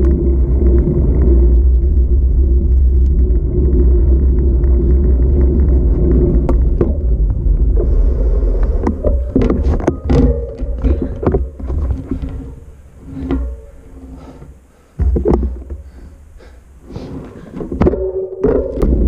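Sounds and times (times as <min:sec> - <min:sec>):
bicycle knocks and rattles: 0:00.0 - 0:08.0, 0:08.6 - 0:14.3, 0:15.0 - 0:16.0, 0:17.3 - 0:19.0
wind rumbling on microphone: 0:00.0 - 0:14.3.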